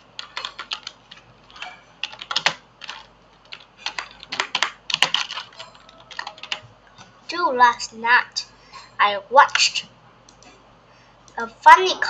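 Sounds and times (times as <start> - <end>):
typing on computer keyboard: 0.2 - 6.6.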